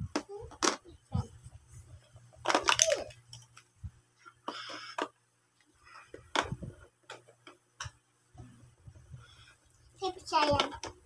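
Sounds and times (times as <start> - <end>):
plastic toys clicking: 2.4 - 3.6.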